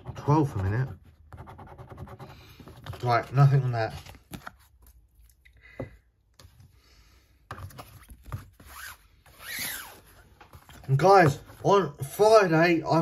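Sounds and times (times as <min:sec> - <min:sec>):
paper cards rustling and sliding: 0:02.4 - 0:05.3, 0:07.4 - 0:12.4.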